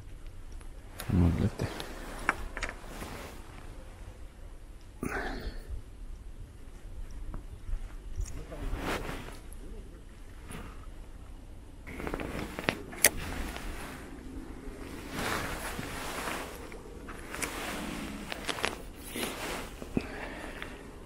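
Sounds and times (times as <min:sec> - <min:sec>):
clothing and rod rustling: 0:00.9 - 0:04.3, 0:06.7 - 0:09.6, 0:11.9 - 0:21.0.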